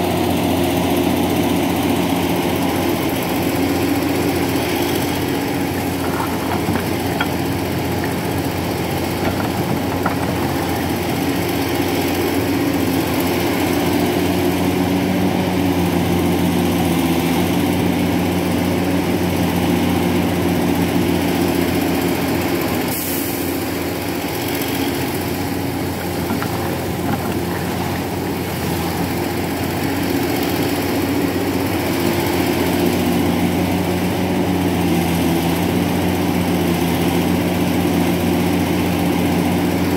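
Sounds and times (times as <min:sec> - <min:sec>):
diesel truck engine idling: 0:00.0 - 0:16.8.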